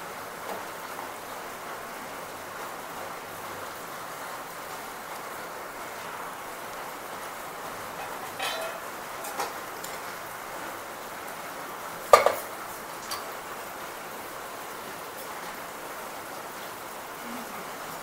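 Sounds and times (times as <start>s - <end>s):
metal kitchenware clinking: 7.9s - 10.0s.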